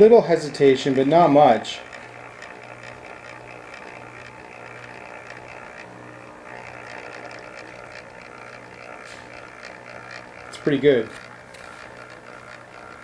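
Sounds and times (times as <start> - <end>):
model train motor whirring: 0.0 - 13.0.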